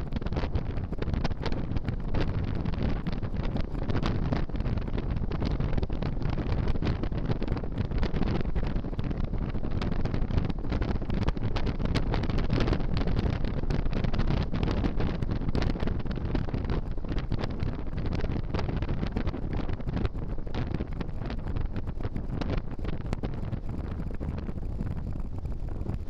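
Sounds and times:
wind buffeting microphone: 0.0 - 26.0
motorcycle running: 21.9 - 26.0.

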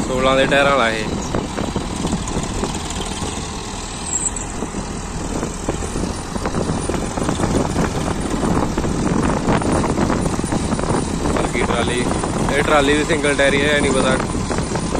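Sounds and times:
tractor diesel engines idling: 0.0 - 14.9.

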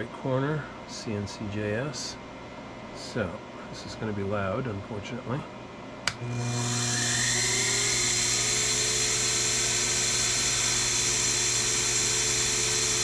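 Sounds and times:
mill spindle motor whining: 6.1 - 13.0.

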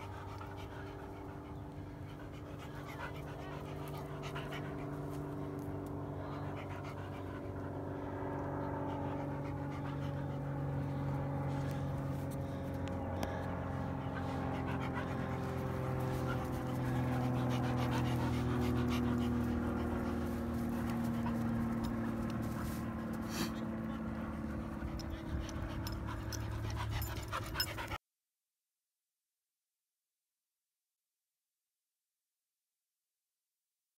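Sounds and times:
dog panting: 0.0 - 28.0
droning hum: 0.0 - 28.0.

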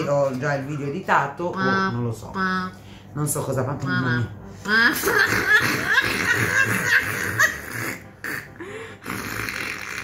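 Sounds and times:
women laughing: 4.9 - 7.6.

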